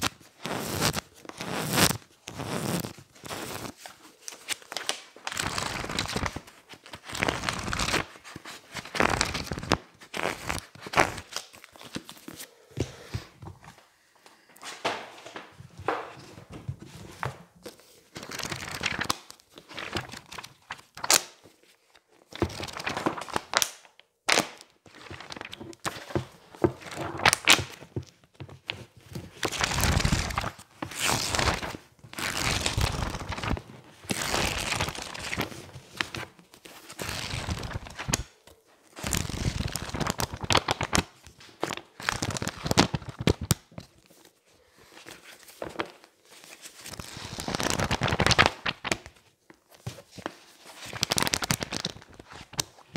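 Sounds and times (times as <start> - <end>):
book pages riffled by hand: 0.0 - 13.8, 15.7 - 21.4, 22.3 - 23.7, 24.3 - 38.3, 38.9 - 44.3, 44.9 - 52.9.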